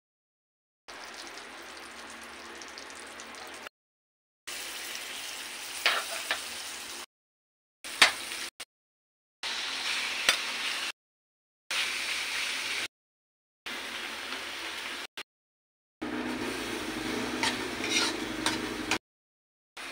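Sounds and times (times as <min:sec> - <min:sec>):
food sizzling in hot oil: 0:00.9 - 0:03.7, 0:04.5 - 0:07.1, 0:07.9 - 0:08.6, 0:09.4 - 0:11.0, 0:11.7 - 0:12.9, 0:13.7 - 0:15.1, 0:16.0 - 0:19.0
metal spatula scraping a wok: 0:05.8 - 0:06.4, 0:17.0 - 0:19.0.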